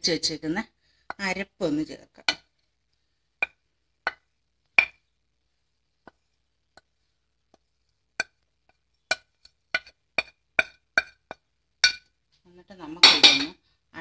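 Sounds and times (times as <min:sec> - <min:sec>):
spatula knocking on pot rim: 0:03.4 - 0:05.0, 0:07.5 - 0:12.1.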